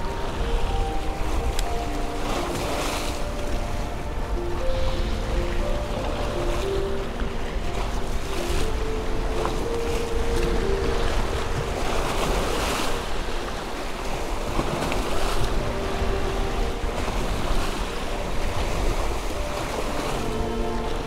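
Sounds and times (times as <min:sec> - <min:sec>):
waves splashing against rocks: 0:00.0 - 0:21.0
wind buffeting microphone: 0:00.0 - 0:21.0.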